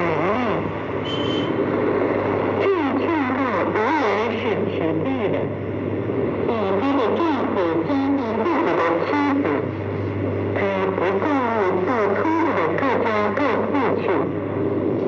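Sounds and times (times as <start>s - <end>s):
low hum: 0.0s - 15.0s
radio noise haze: 0.0s - 15.0s
faint high whistle: 1.0s - 1.6s
radio broadcast voice: 6.4s - 9.8s.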